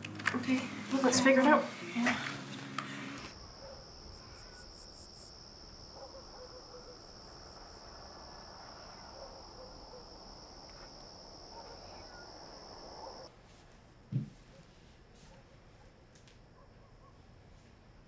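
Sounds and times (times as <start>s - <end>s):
crickets trilling: 0.7s - 13.3s.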